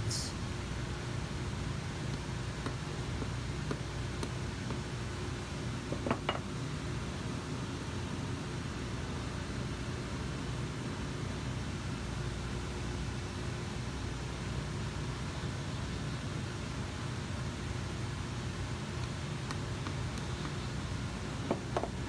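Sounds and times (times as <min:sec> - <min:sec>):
shop noise hiss: 0:00.0 - 0:22.0
hammer tapping tacks into leather: 0:02.1 - 0:04.9.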